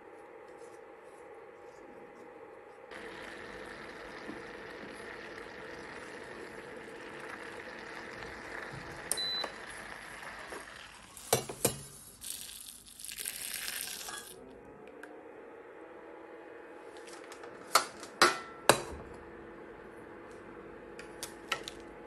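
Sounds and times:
cooktop fan running: 0:00.0 - 0:22.0
hot liquid pouring into bowl: 0:02.9 - 0:14.4
cooktop beep: 0:09.0 - 0:09.9.

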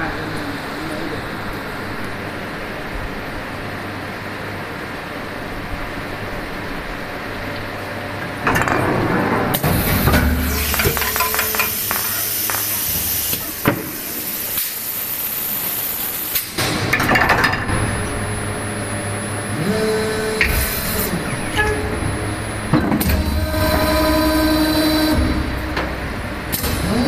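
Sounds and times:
machine humming: 0:00.0 - 0:27.0
machine clicks and knocks: 0:08.4 - 0:13.9
hydraulic hiss: 0:09.6 - 0:16.8.

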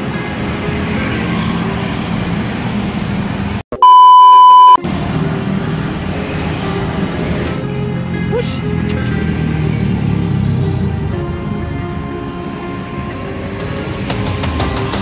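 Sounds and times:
passing road traffic: 0:00.0 - 0:03.6, 0:04.5 - 0:15.0
test-tone beep: 0:03.7 - 0:04.8.

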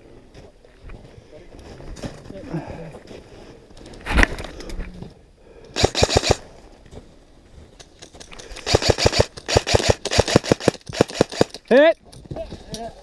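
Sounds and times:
airsoft rifle full-auto bursts: 0:05.8 - 0:06.4, 0:08.6 - 0:11.6.

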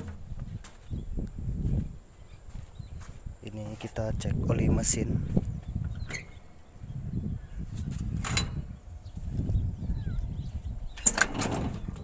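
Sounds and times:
steady low rumble: 0:00.0 - 0:11.0
metal latch clicks: 0:06.0 - 0:06.4, 0:08.2 - 0:08.7, 0:11.0 - 0:11.8.

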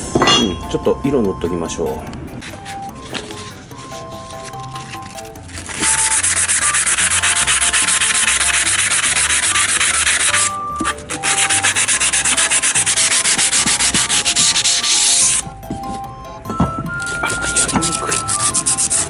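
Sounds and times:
hand sanding metal: 0:05.6 - 0:15.5, 0:16.9 - 0:19.0.

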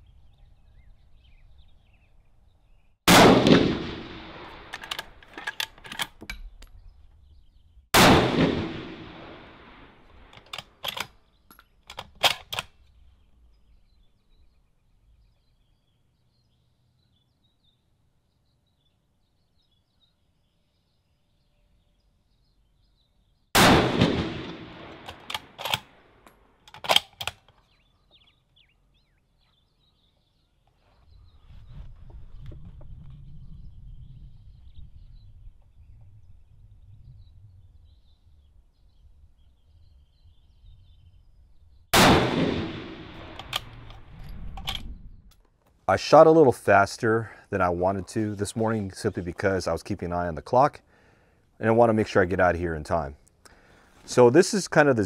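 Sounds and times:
rifle shots: 0:03.1 - 0:06.1, 0:08.0 - 0:11.0, 0:23.6 - 0:26.1, 0:42.0 - 0:44.0
rifle bolt metallic clicks: 0:04.5 - 0:06.8, 0:10.1 - 0:12.9, 0:23.7 - 0:27.7, 0:43.1 - 0:45.5.

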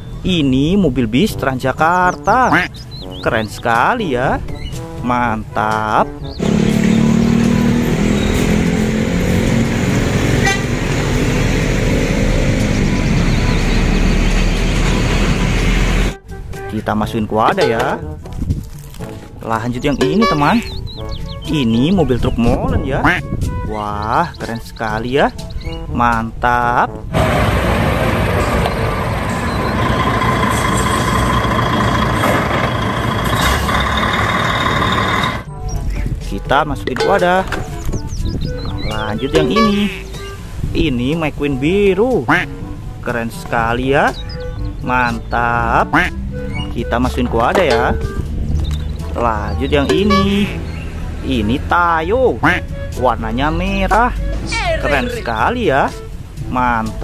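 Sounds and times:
motorcycles and cars: 0:06.2 - 0:16.2, 0:27.1 - 0:35.8, 0:46.1 - 0:56.5
bus engine driving past: 0:06.4 - 0:16.2, 0:27.1 - 0:35.5
short horn toot: 0:10.4 - 0:10.8, 0:39.4 - 0:40.1
thin high whine: 0:28.3 - 0:35.5.

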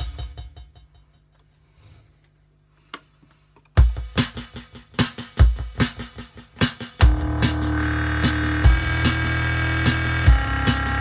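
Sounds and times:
electronic drum beat: 0:00.0 - 0:01.1, 0:03.8 - 0:11.0.

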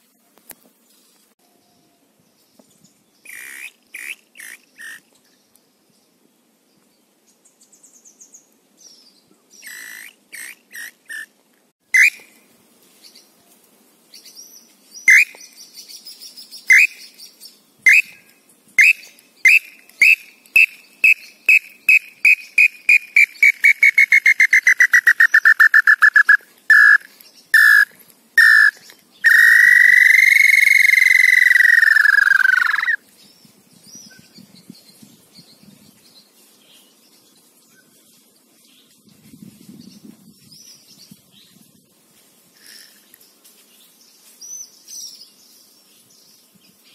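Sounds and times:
bird call whistle: 0:11.9 - 0:12.3, 0:15.1 - 0:15.4, 0:16.7 - 0:17.1, 0:17.9 - 0:33.0.

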